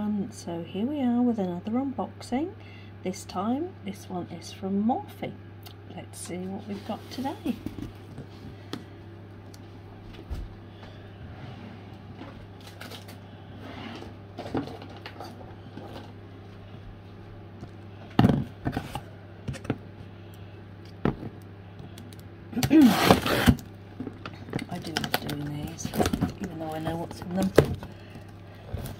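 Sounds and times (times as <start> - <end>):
cardboard box tearing: 22.6 - 23.6
taps clicks and rustles: 23.5 - 28.9.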